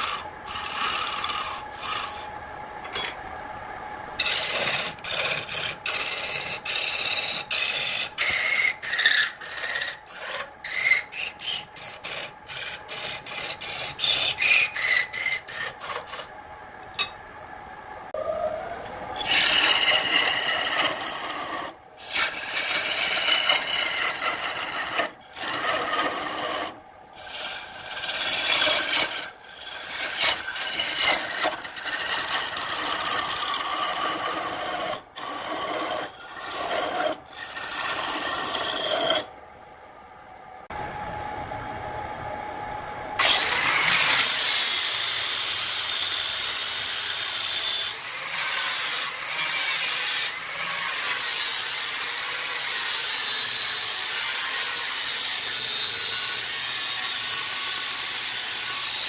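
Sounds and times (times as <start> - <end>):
chisel cutting wood on a lathe: 0.0 - 2.4, 4.2 - 16.3, 19.2 - 39.3, 43.2 - 59.0.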